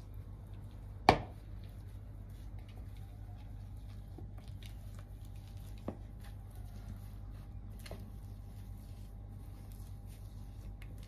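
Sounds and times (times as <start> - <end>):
potatoes squishing: 0.0 - 11.0.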